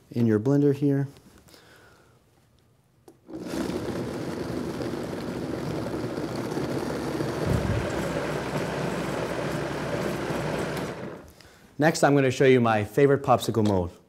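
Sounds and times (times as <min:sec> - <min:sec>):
blender motor running: 0:03.3 - 0:11.3.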